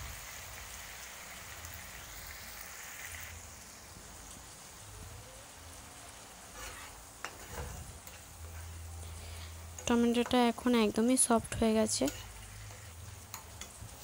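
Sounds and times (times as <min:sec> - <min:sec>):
sauce sizzling in oil: 0:00.0 - 0:14.0
spatula clicking in pan: 0:12.1 - 0:13.8.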